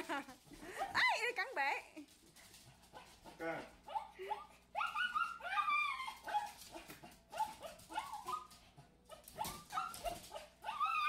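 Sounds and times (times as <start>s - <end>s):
small dog yapping: 3.9s - 11.0s.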